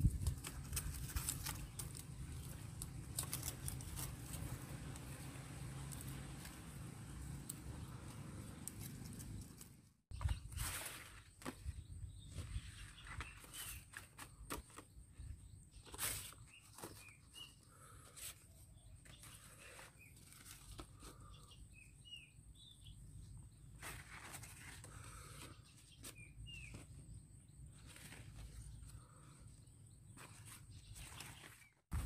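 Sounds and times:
leaves rustling and crackling: 0.0s - 9.7s, 10.4s - 14.2s
bird chirps: 11.2s - 23.8s, 25.1s - 31.8s.

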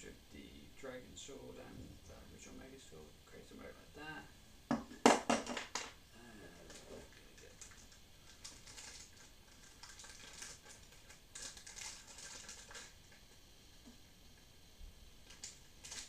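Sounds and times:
plastic wrapping and cardboard rustling: 6.6s - 13.2s, 15.3s - 16.0s.

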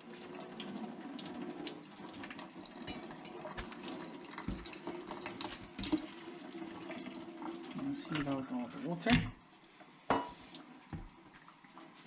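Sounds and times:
water draining into metal sink: 0.0s - 9.3s.

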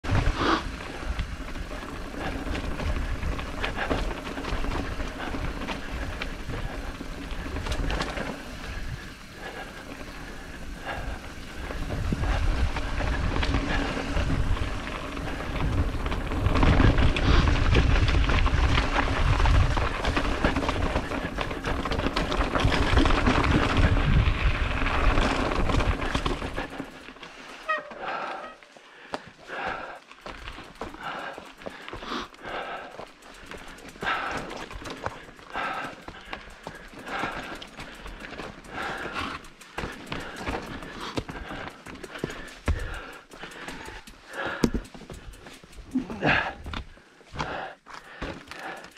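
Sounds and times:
wind rumbling on microphone: 0.0s - 27.1s.

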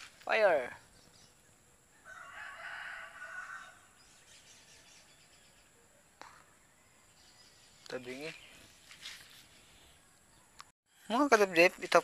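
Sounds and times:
distant rooster crowing: 1.9s - 4.0s.

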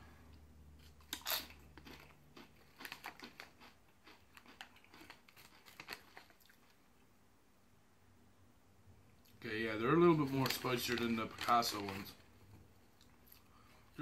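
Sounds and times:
crisp crunching chewing: 0.8s - 6.8s.

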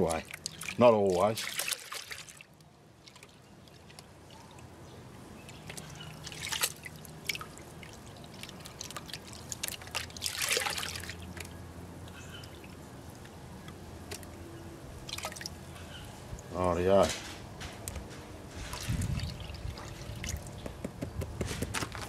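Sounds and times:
water splashing into tub: 0.0s - 4.0s, 5.5s - 11.6s, 15.0s - 15.6s
muddy water sloshing in pan: 0.0s - 4.8s, 5.4s - 13.3s, 15.0s - 15.7s.

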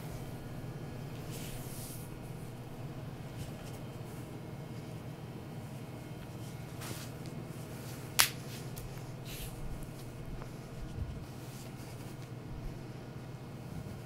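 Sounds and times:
low room hum: 0.0s - 14.0s
sharp snap or slap: 8.2s - 8.5s.

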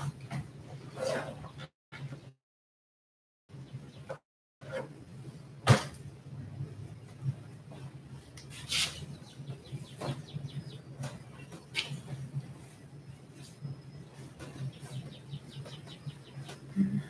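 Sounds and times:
low steady hum: 4.6s - 17.0s.

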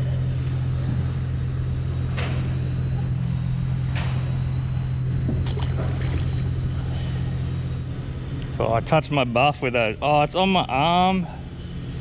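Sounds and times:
boat motor humming: 4.5s - 8.0s.

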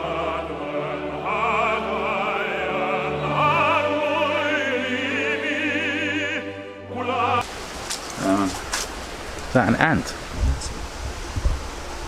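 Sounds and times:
opera singer with vibrato: 0.0s - 7.4s
sustained accompaniment: 0.0s - 9.9s.

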